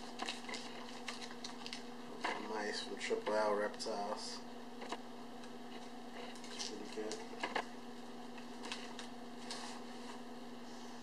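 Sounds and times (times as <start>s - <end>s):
packaging crinkling: 0.0s - 2.7s, 5.7s - 10.2s
faint steady hum: 0.0s - 11.0s.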